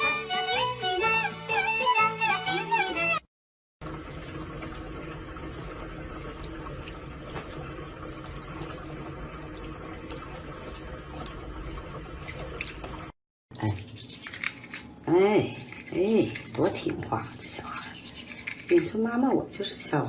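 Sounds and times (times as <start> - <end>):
tap water running into sink: 3.8 - 13.1.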